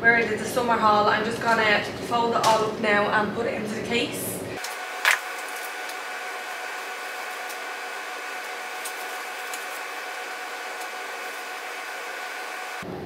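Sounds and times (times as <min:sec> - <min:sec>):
mechanical whir and hiss: 0:04.6 - 0:13.0.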